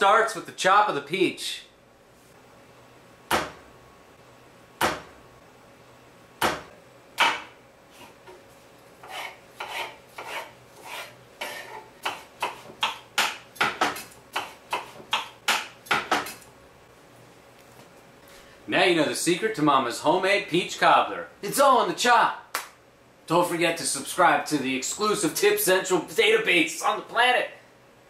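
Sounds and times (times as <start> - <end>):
fast chopping knocks: 3.3 - 3.6, 4.8 - 5.1, 6.4 - 7.5
knife cutting on wooden board: 9.0 - 16.4.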